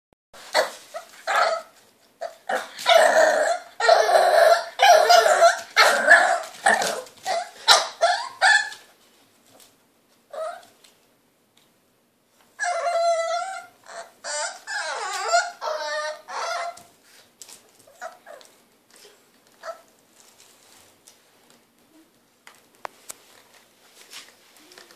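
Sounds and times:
puppy barking and yapping: 0.4 - 8.9, 12.6 - 16.9, 19.6 - 19.9.

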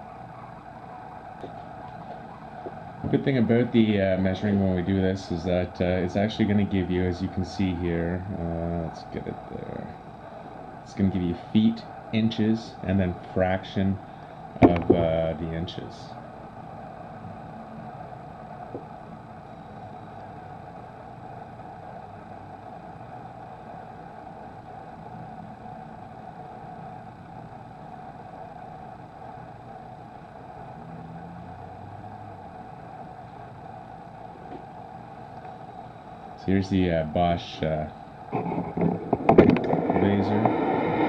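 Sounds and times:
background rumble and hiss: 0.0 - 41.0.

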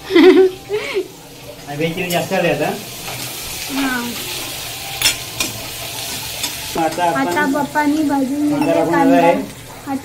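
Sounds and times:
vegetables sizzling in oil: 0.0 - 10.0
spatula clinking against pan: 5.0 - 5.6.

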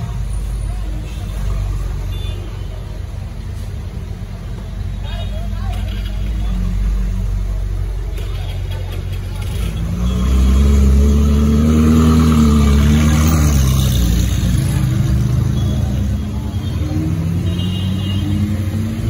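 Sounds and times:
passing traffic: 0.0 - 19.0
motorcycle: 5.0 - 19.0
sports car engine pulling away: 9.4 - 15.3.

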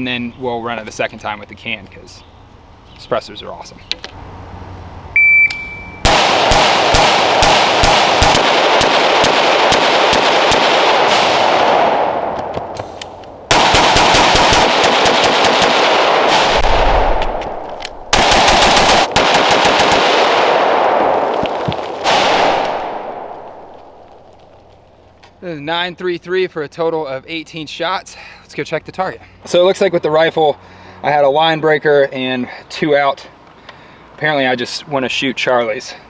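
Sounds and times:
shot timer beep: 5.2 - 6.1
rifle firing rapid shots: 6.0 - 12.2, 13.5 - 21.3, 22.0 - 23.6.

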